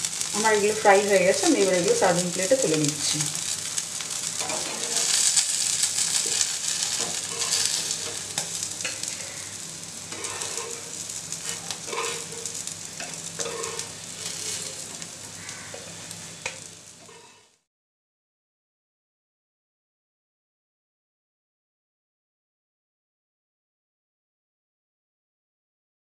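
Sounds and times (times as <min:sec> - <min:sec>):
fish sizzling in frying pan: 0:00.0 - 0:17.7
metal spatula scraping pan: 0:04.2 - 0:09.4, 0:10.1 - 0:15.0, 0:15.7 - 0:17.6.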